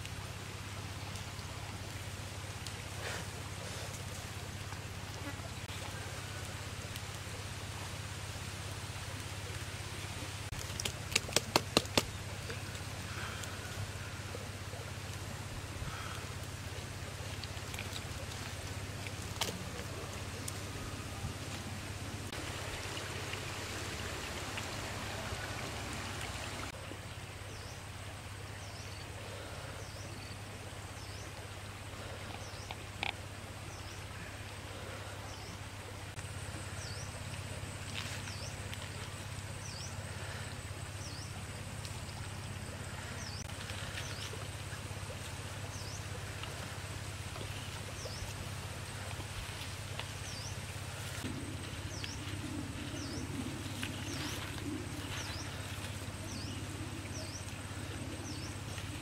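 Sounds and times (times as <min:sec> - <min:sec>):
stream rushing: 0:00.0 - 0:59.0.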